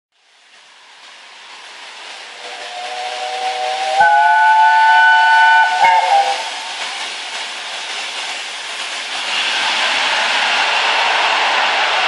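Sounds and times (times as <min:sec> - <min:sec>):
approaching locomotive: 0:00.2 - 0:12.0
steam whistle chord: 0:02.4 - 0:06.7.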